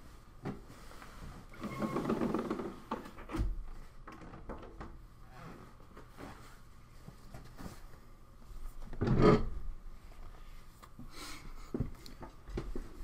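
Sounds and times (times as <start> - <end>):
desk chair scraping: 1.4 - 3.2.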